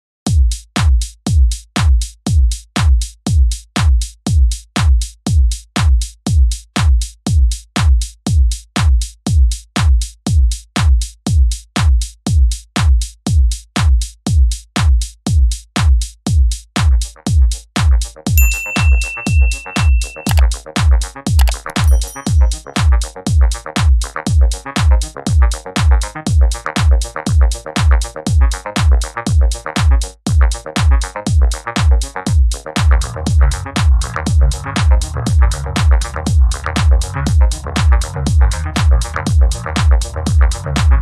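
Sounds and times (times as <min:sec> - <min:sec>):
steady kick drum: 0:00.3 - 0:16.6.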